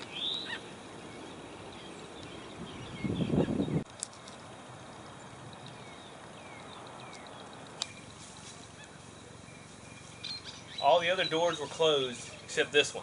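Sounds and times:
sharp clicks: 5.5s - 8.1s.

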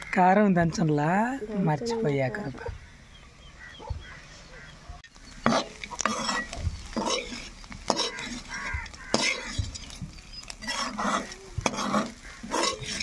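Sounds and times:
metal spatula scraping a pan: 5.4s - 13.0s.

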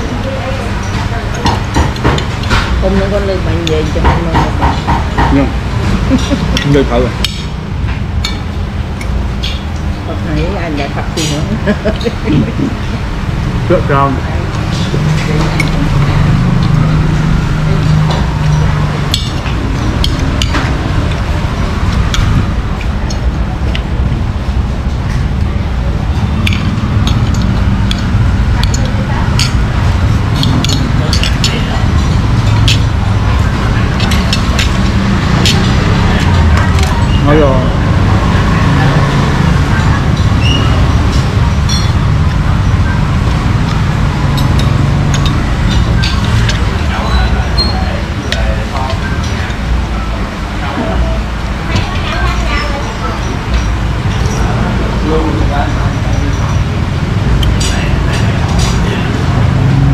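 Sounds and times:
low traffic rumble: 0.0s - 59.9s
steady background noise: 0.0s - 59.9s
tableware clinking: 26.2s - 37.4s, 39.6s - 42.4s, 43.4s - 49.5s
cutlery clinking on plate: 44.3s - 47.8s.

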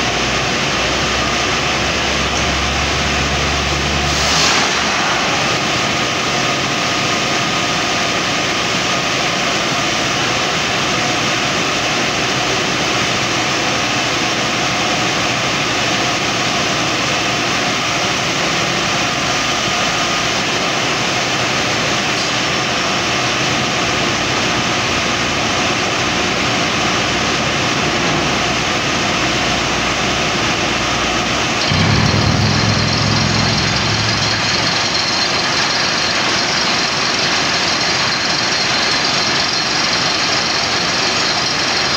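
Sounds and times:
deep rumble: 31.6s - 36.4s
drilling rig engine din: 31.6s - 41.9s.

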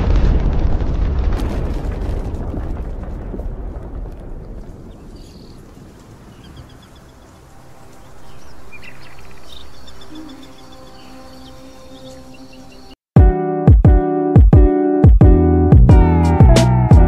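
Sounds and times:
birds chirping: 4.8s - 13.0s.

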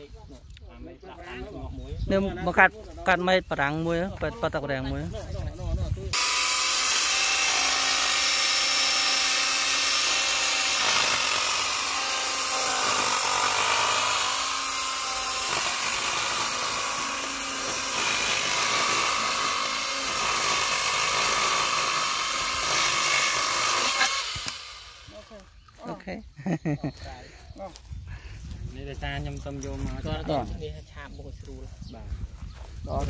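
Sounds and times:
chain rasping through wood: 6.2s - 24.8s
pole saw whining: 6.2s - 25.4s.

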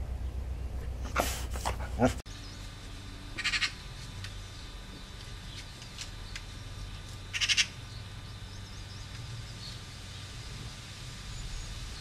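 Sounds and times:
magpie chattering: 3.4s - 3.8s, 7.3s - 7.7s.

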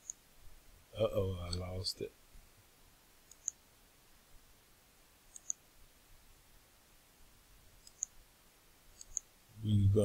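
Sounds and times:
computer mouse clicking: 0.0s - 0.2s, 3.3s - 3.6s, 5.3s - 5.6s, 7.8s - 8.2s, 8.9s - 9.3s.

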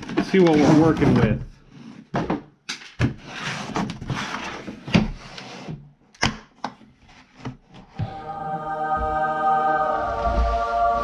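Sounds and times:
plastic case sliding on wood: 0.0s - 2.1s.

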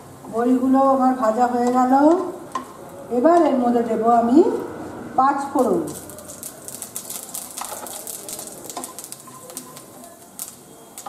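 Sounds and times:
seeds spluttering in hot oil: 5.4s - 11.0s.

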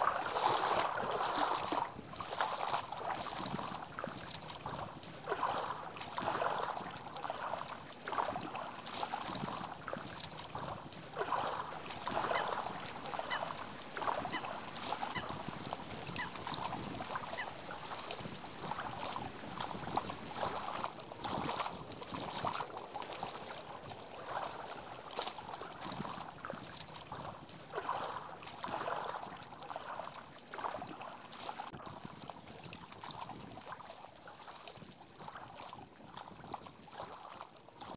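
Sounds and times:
small waves lapping on shore: 0.0s - 37.9s.

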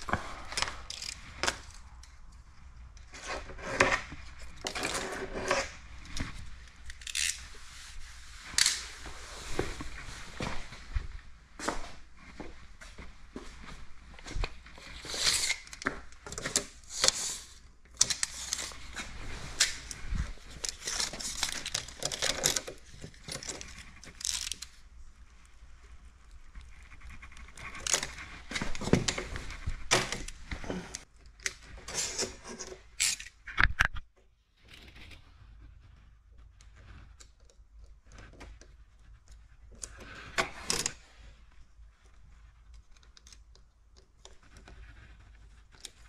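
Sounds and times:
plastic film rustling and crinkling: 13.6s - 33.1s.

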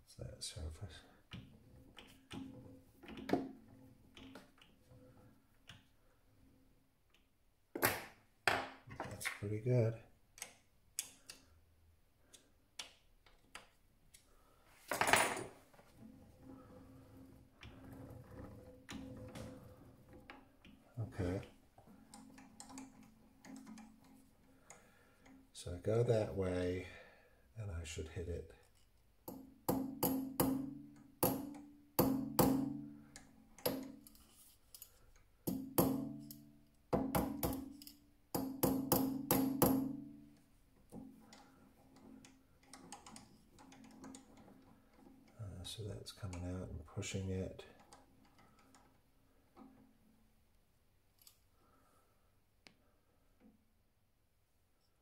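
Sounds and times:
small hammer tapping metal: 29.2s - 34.1s, 35.4s - 40.2s.

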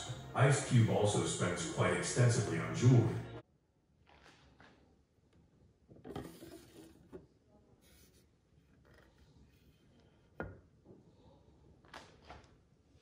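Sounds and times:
rubbing scrape: 7.8s - 9.8s.

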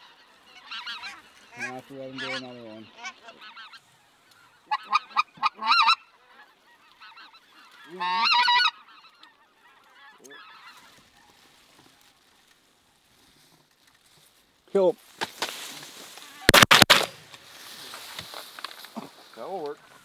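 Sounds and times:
goose calling loudly: 0.0s - 11.4s
flock of geese calling: 0.0s - 13.6s.

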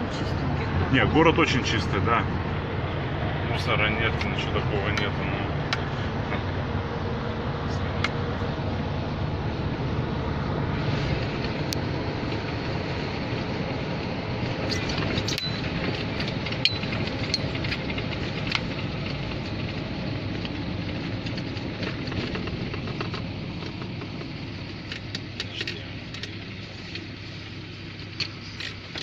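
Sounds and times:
van engine and tyre noise: 0.0s - 29.0s
light rattles and clicks: 14.4s - 27.2s.

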